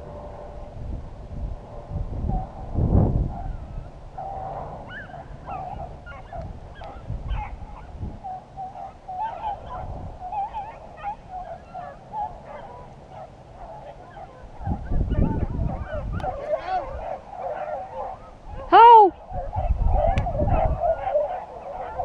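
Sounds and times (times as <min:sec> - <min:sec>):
wind rumble on microphone: 0:00.0 - 0:22.0
hounds baying: 0:03.3 - 0:22.0.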